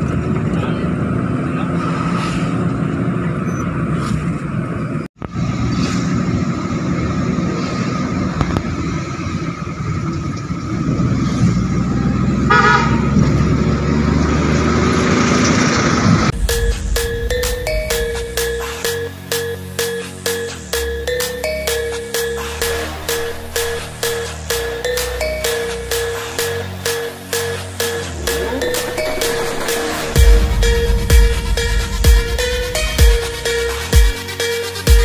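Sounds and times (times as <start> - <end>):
car engine and road noise: 0.0 - 35.0
car horn toot: 12.5 - 13.2.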